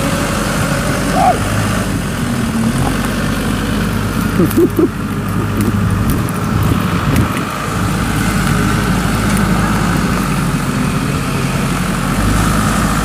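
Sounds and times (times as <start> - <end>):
diesel engine running: 0.0 - 13.0
person calling: 0.9 - 1.6, 4.2 - 5.6.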